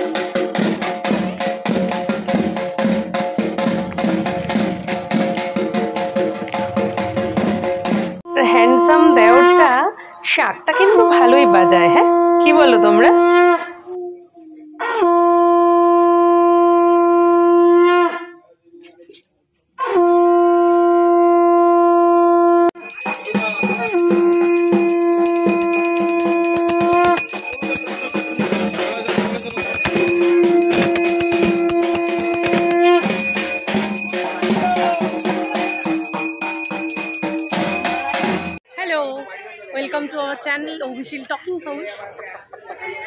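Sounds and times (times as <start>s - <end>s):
bell ringing rapidly: 22.8s - 38.6s
conch shell blasts: 22.8s - 38.6s.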